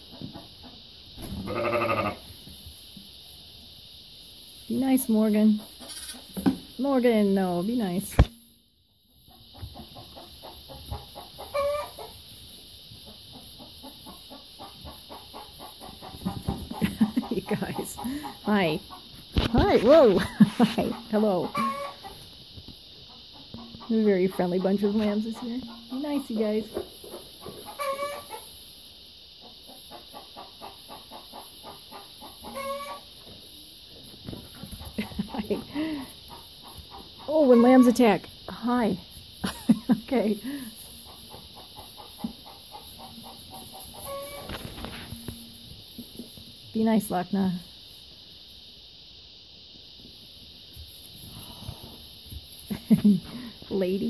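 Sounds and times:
chickens clucking: 0.0 - 1.3, 9.2 - 28.7, 29.3 - 38.4, 39.2 - 46.4
farm animal calls: 1.4 - 2.2, 9.7 - 12.1, 20.8 - 22.2, 27.5 - 28.4, 29.9 - 33.1, 41.1 - 44.6.

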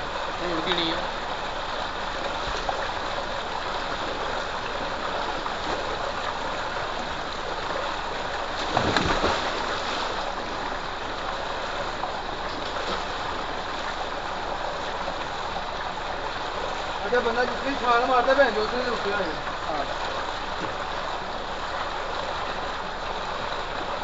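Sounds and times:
person splashing into water: 8.6 - 10.2.

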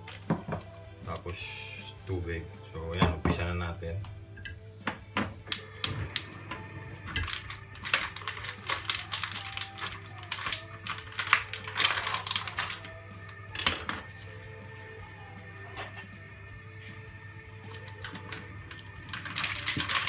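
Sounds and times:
kitchen clatter: 4.4 - 12.9, 13.5 - 14.4, 17.7 - 20.0.

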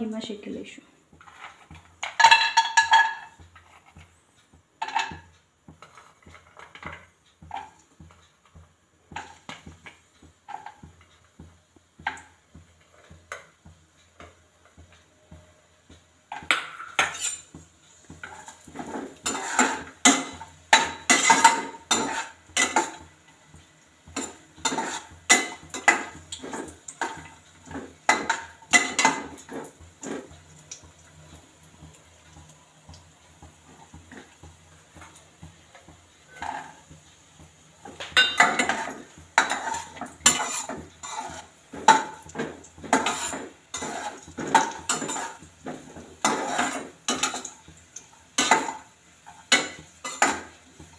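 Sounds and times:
metal spatula scraping a pan: 1.1 - 4.1, 4.8 - 11.2, 16.3 - 23.1, 24.0 - 30.4, 36.2 - 37.0, 37.8 - 50.8.

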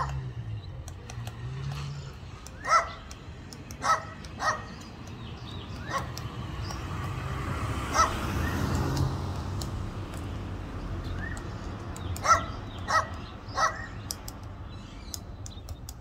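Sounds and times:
woodpecker tapping bark: 0.0 - 16.0
short bark-like bird calls: 2.5 - 4.9, 5.7 - 6.2, 12.2 - 14.1.

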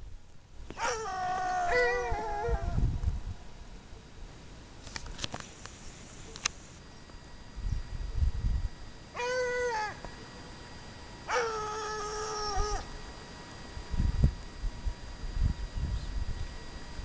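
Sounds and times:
hound baying: 0.8 - 2.8, 11.3 - 12.9.

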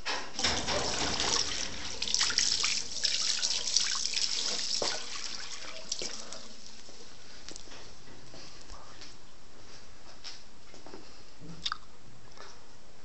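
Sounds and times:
running splashing water: 0.4 - 7.6.

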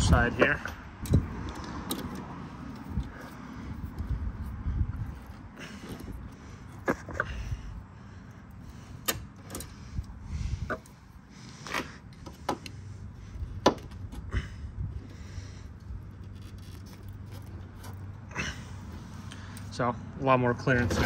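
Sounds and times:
pliers clicking on metal: 1.0 - 3.3.

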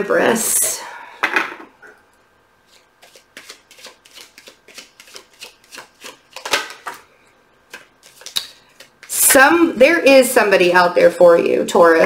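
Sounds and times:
cards being shuffled: 2.7 - 7.1, 7.7 - 9.2.

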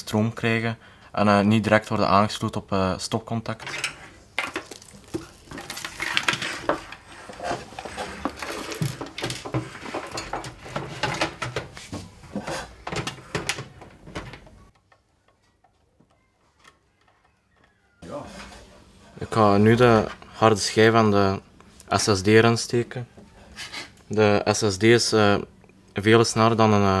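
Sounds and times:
power supply and cables being handled: 3.6 - 15.8.

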